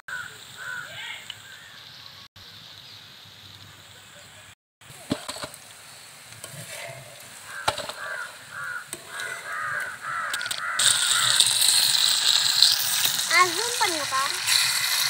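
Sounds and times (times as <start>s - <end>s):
crow cawing: 0.1s - 1.8s, 7.4s - 11.6s
fish frying in hot oil: 9.3s - 15.0s.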